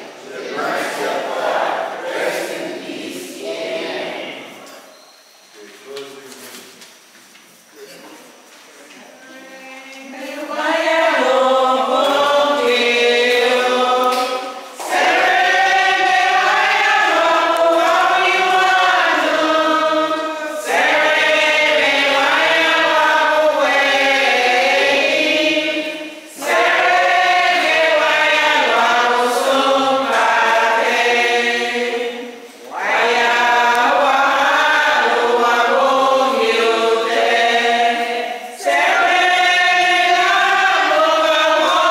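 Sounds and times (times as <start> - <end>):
congregation singing a hymn: 0.0 - 6.7, 9.0 - 41.9.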